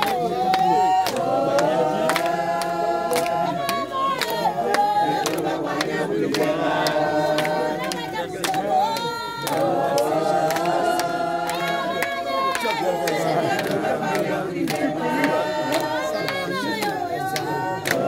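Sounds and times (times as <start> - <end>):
group chanting: 0.0 - 18.0.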